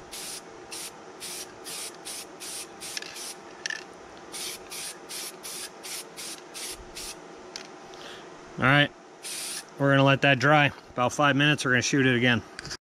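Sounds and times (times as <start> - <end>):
spray can hissing: 0.0 - 3.4, 4.3 - 7.2, 9.2 - 9.6.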